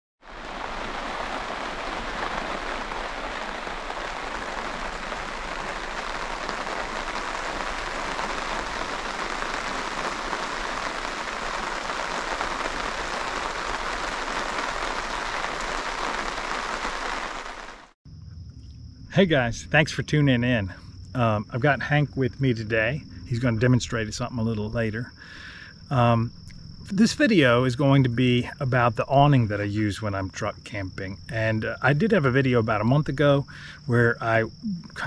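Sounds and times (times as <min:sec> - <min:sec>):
steady rain on fabric awning: 0:00.2 - 0:18.0.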